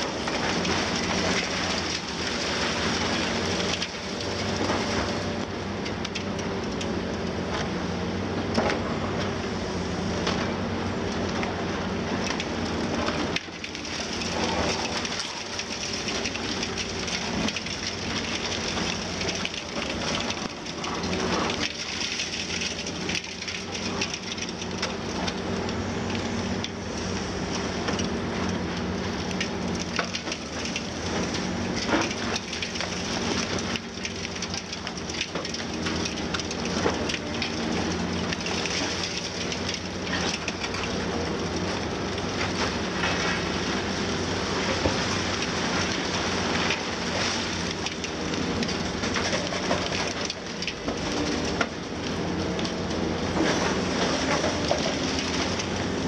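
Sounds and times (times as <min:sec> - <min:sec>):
excavator diesel engine droning: 0:00.0 - 0:56.0
concrete crushing and rubble falling: 0:12.2 - 0:25.5, 0:27.9 - 0:56.0.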